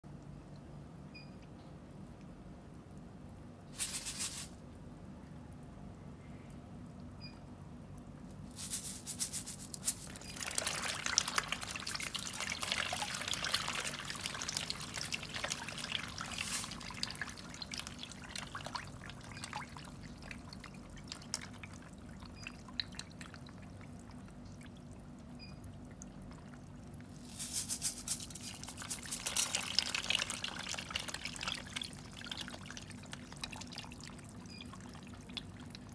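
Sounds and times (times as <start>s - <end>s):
fish splashing at water surface: 8.6s - 24.1s, 27.2s - 35.7s.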